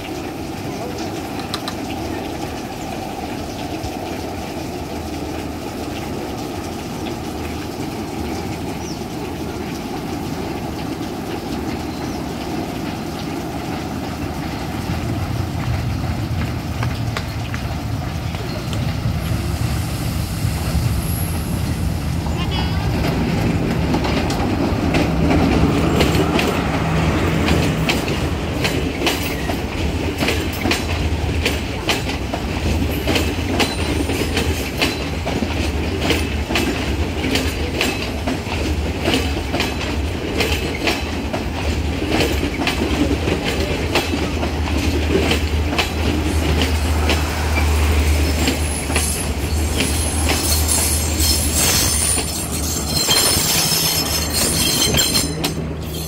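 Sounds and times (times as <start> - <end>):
train wheels clicking over rail joints: 0.0 - 19.7, 22.9 - 56.0
low train rumble: 0.0 - 56.0.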